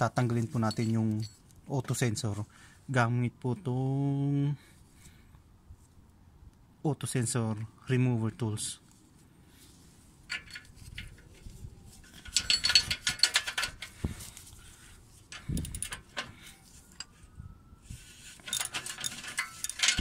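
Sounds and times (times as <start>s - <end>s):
metal tools clicking and clinking: 0.0s - 1.6s, 10.3s - 14.0s, 15.3s - 17.2s, 18.3s - 20.0s.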